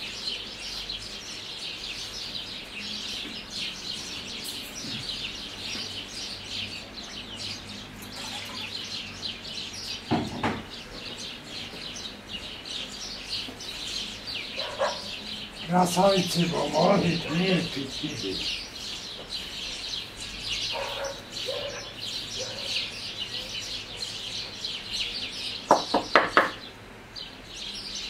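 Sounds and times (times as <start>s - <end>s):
small birds chirping: 0.0s - 28.0s.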